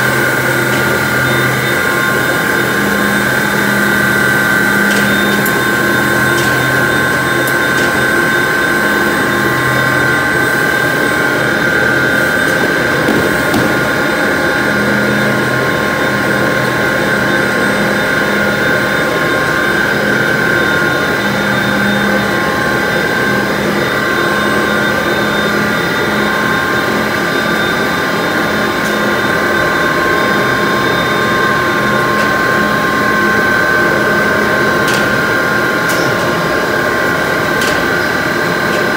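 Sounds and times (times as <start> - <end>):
factory machinery drone: 0.0 - 38.9
high machine whine: 0.0 - 38.9.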